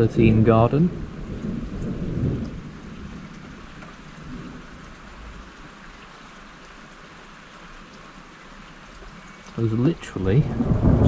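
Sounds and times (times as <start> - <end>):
low roll of thunder: 0.0 - 5.6, 10.0 - 11.0
steady falling rain: 0.0 - 11.0.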